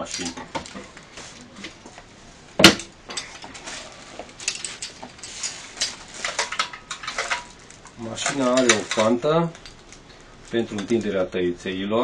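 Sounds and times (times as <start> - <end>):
metal parts clinking: 4.4 - 10.0.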